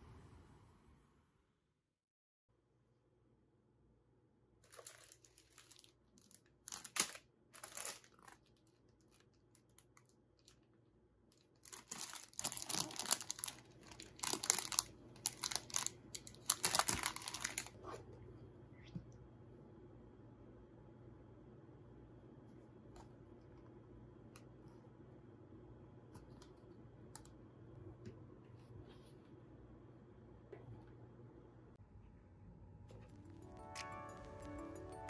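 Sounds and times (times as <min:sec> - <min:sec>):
plastic bag crinkling: 0:04.6 - 0:10.7, 0:11.3 - 0:17.8.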